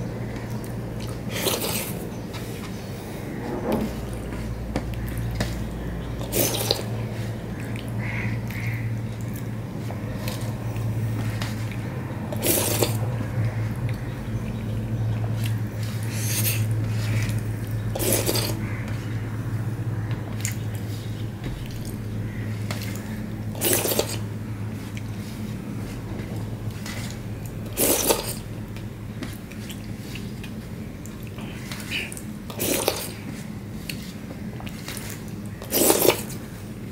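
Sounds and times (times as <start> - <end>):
steady low hum: 0.0 - 36.9
scraping on metal plate: 3.1 - 4.6.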